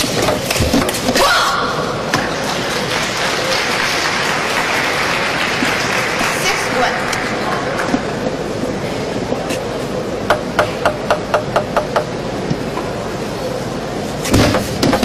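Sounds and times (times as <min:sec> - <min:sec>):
arena background noise: 0:00.0 - 0:15.0
table tennis ball clicking: 0:10.3 - 0:12.1.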